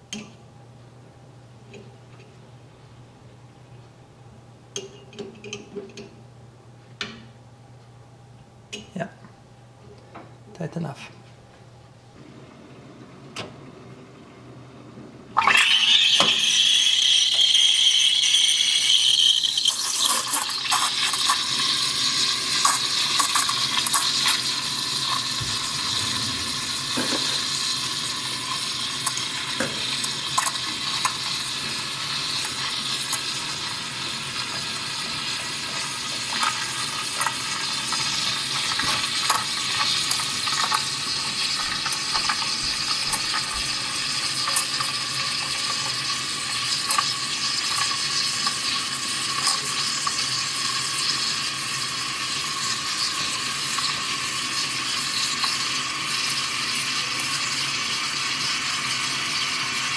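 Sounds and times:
steam wand hissing into milk: 0:15.4 - 0:59.9.

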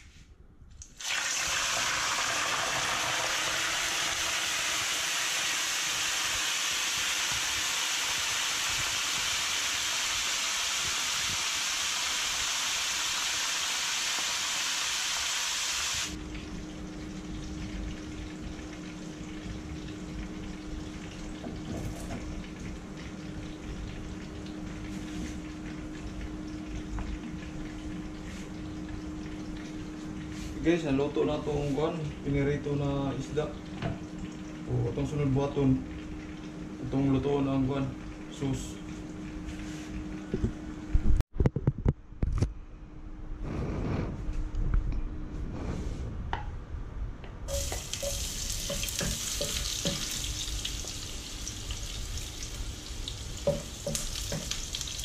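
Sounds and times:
fish sizzling in hot oil: 0:01.0 - 0:16.2, 0:47.5 - 0:55.0
low rumbling hum: 0:41.8 - 0:55.0.

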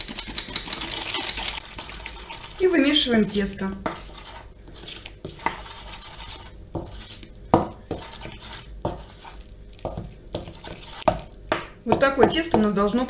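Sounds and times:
utensil clinking metal bowl: 0:00.0 - 0:02.2
utensil scraping metal bowl: 0:00.0 - 0:11.2.

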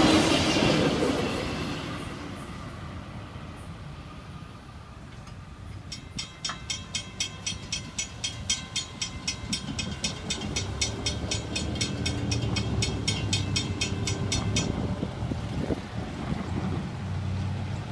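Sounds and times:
vehicles driving over tracks: 0:00.0 - 0:17.9
crossing warning bells ringing: 0:05.0 - 0:17.4.

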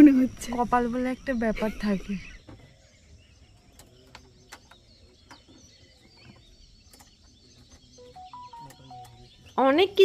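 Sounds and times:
faint bird chirps: 0:00.0 - 0:10.0
soft scattered clicks: 0:03.5 - 0:09.3.

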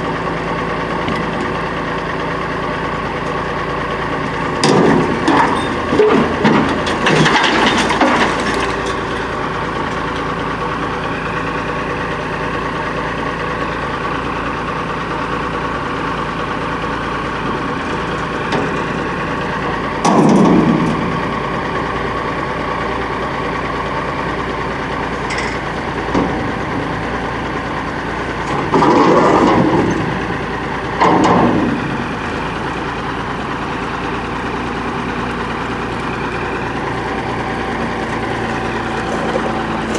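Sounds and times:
garbage truck diesel engine: 0:00.0 - 0:39.9
clanks and knocks: 0:04.6 - 0:09.3, 0:20.0 - 0:21.0, 0:28.4 - 0:30.2, 0:31.0 - 0:31.8.

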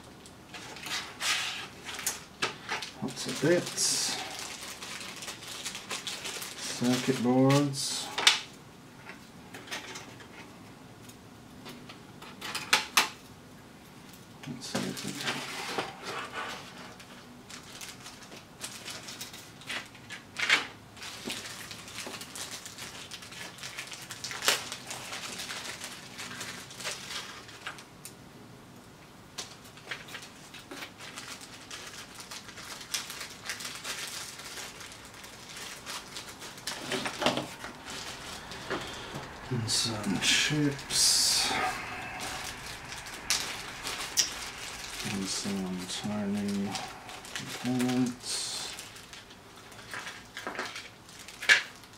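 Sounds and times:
plastic bags crinkling: 0:00.2 - 0:08.2, 0:14.8 - 0:20.2, 0:21.0 - 0:27.9, 0:29.4 - 0:51.9
small parts clicking and clattering: 0:48.7 - 0:51.9.

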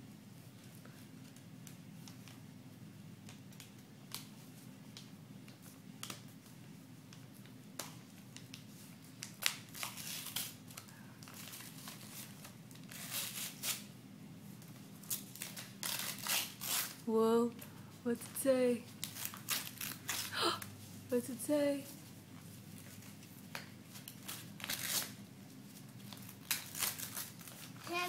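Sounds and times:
paper envelope tearing: 0:09.2 - 0:10.7, 0:11.3 - 0:13.9, 0:15.0 - 0:17.0, 0:19.0 - 0:20.4, 0:24.0 - 0:25.2, 0:26.1 - 0:28.0.

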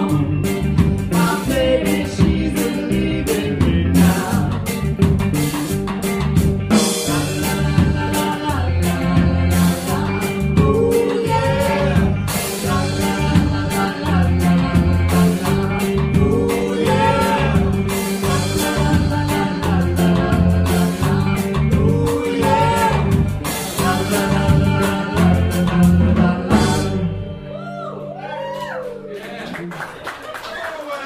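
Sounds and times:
live band playing: 0:00.0 - 0:29.8
woman singing: 0:01.1 - 0:04.7, 0:07.0 - 0:27.1.

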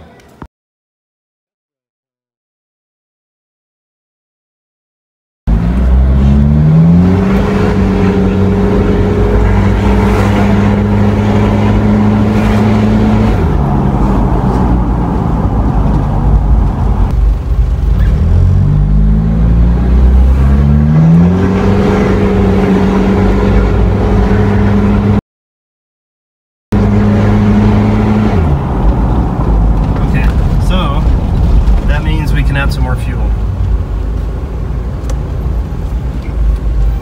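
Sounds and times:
diesel engine from inside cab: 0:26.8 - 0:37.0.

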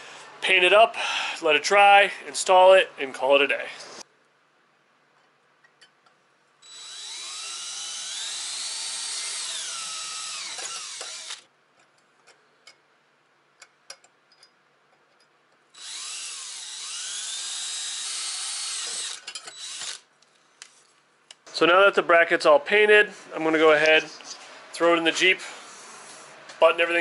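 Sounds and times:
drill boring through metal: 0:06.6 - 0:11.4, 0:15.8 - 0:20.0.

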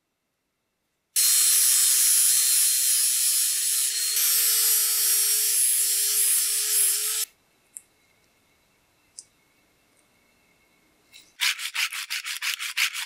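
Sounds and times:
angle grinder grinding steel: 0:01.2 - 0:07.3.

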